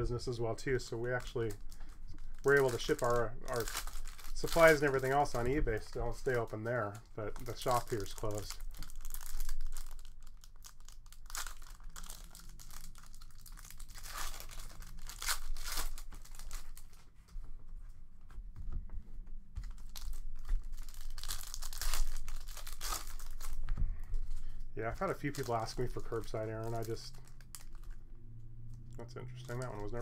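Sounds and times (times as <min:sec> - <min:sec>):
foil wrapper tearing and crinkling: 0:00.3 - 0:17.0, 0:19.6 - 0:28.0, 0:28.9 - 0:30.0.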